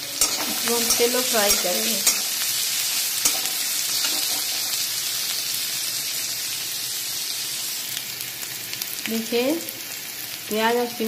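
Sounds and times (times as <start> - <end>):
vegetables sizzling in oil: 0.0 - 11.0
spatula tapping pan: 0.2 - 2.3.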